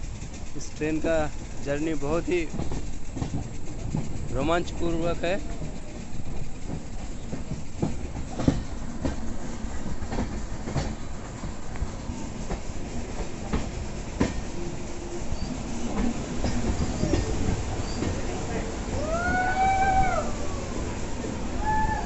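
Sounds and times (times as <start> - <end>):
train rumbling: 0.0 - 22.0
wheels clacking over rail joints: 0.0 - 22.0.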